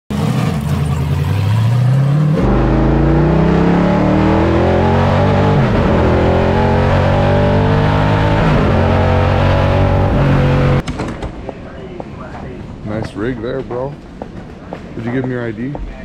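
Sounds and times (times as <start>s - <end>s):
pickup truck engine accelerating: 0.1s - 10.8s.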